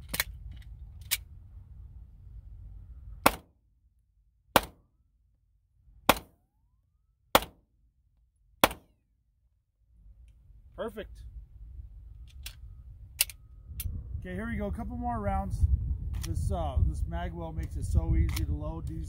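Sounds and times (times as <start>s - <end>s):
pistol shots: 3.2s - 3.5s, 4.6s - 4.8s, 6.1s - 6.4s, 7.3s - 7.6s, 8.6s - 8.9s.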